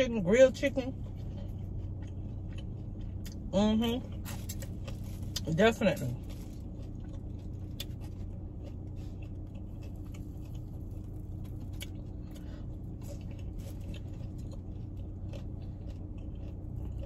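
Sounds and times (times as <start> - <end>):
low hum: 0.0 - 17.0
person chewing crispy food: 0.0 - 17.0
meat tearing: 4.1 - 17.0.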